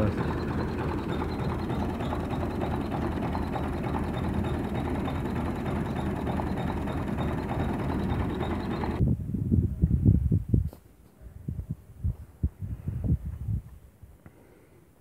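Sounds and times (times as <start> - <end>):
tractor diesel engine idling: 0.0 - 9.0.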